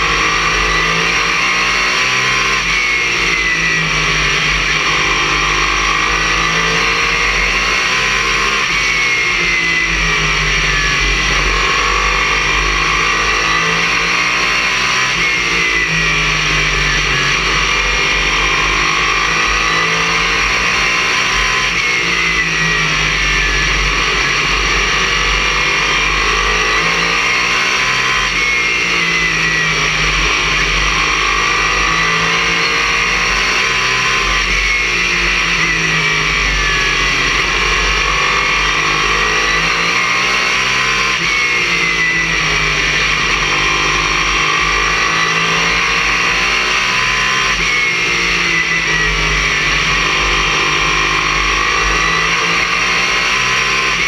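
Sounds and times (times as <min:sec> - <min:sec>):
race car engine: 0:00.0 - 0:54.0
wind and chassis roar: 0:00.0 - 0:54.0.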